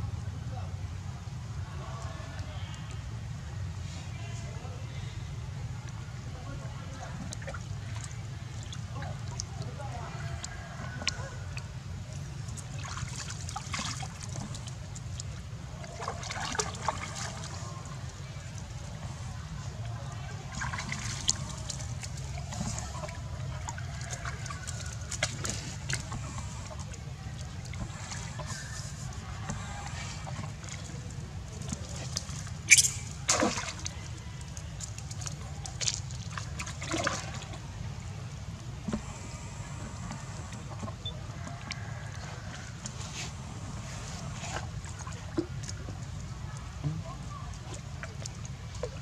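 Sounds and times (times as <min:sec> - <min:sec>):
water splashing and trickling: 0:01.1 - 0:49.0.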